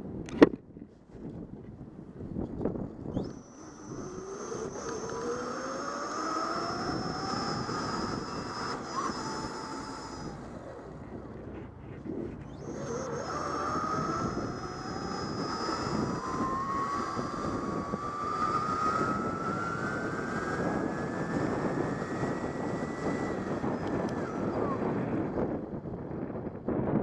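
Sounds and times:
wind noise on microphone: 0.0 - 27.0
electric bike motor whining: 2.3 - 27.0.

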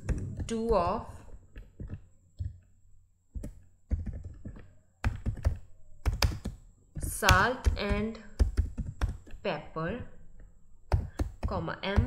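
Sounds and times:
keyboard typing: 0.0 - 9.4, 10.0 - 12.0.

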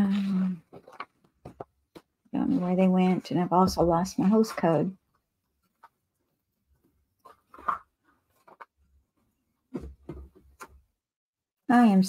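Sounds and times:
paper rustling: 0.1 - 2.7, 6.8 - 8.8.

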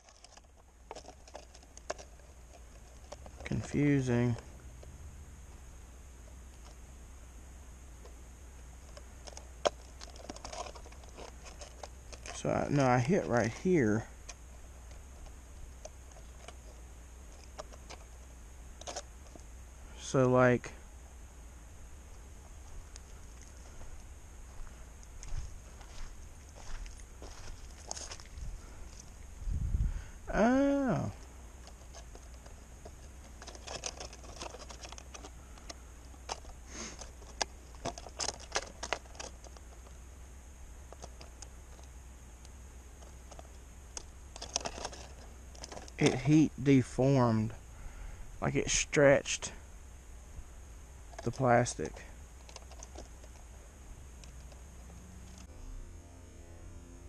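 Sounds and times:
plastic bottle crinkling: 0.0 - 3.6, 8.9 - 12.4
low steady hum: 0.0 - 57.0.

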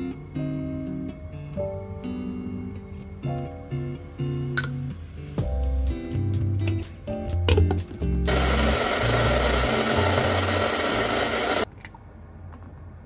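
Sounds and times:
blender crushing ice: 8.3 - 11.7.

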